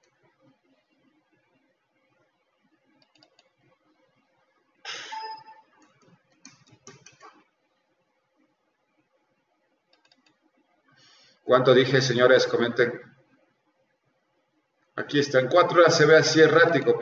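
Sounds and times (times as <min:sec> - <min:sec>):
keyboard typing: 0:02.9 - 0:03.7, 0:04.9 - 0:07.4, 0:09.9 - 0:10.4.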